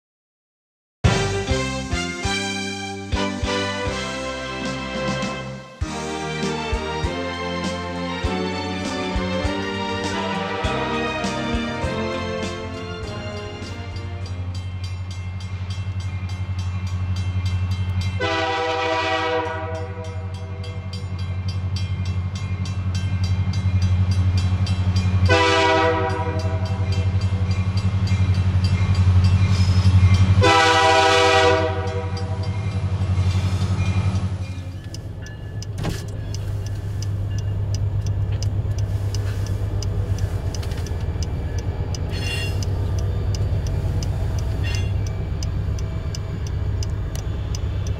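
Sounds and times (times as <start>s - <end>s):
diesel locomotives droning: 1.0s - 47.9s
train rumble: 1.1s - 47.9s
train air horn blasts: 18.2s - 20.4s, 25.3s - 26.9s, 30.4s - 32.5s, 42.1s - 42.7s.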